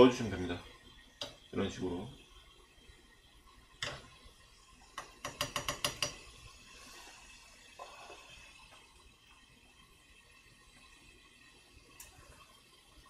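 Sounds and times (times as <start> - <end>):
spoon stirring in a pot: 3.5 - 8.9
spoon clicking against pot: 5.0 - 6.2.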